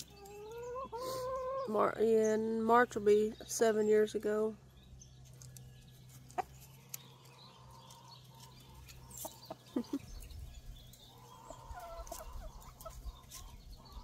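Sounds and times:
hens clucking: 0.0 - 2.0, 5.9 - 14.0.

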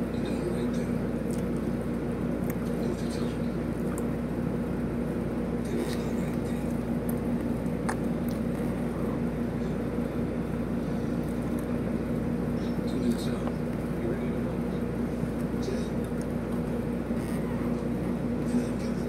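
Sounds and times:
low machine hum: 0.0 - 19.0
mouth sounds of eating: 5.6 - 9.9.

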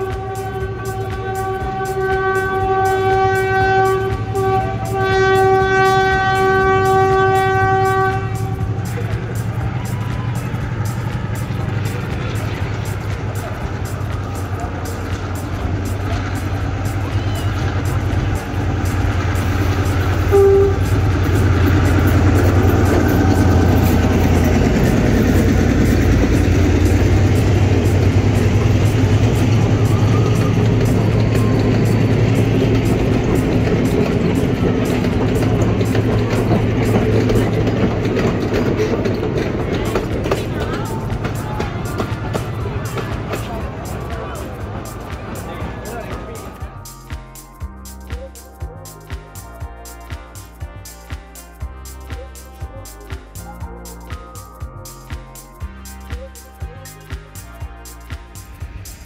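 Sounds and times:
train horn: 0.0 - 11.2, 14.0 - 46.8
low train rumble: 0.0 - 59.0
loud single tone: 20.3 - 21.0.

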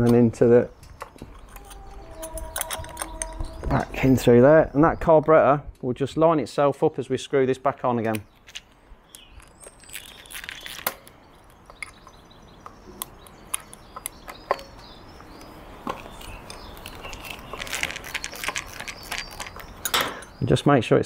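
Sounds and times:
faint birdsong: 0.0 - 21.0.

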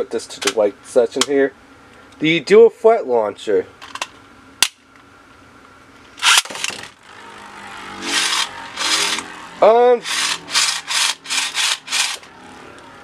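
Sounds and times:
spinning top launcher whir and clack: 6.2 - 7.0, 8.0 - 9.3, 10.0 - 12.3
spinning top scraping plastic: 8.0 - 9.3, 10.0 - 12.3.

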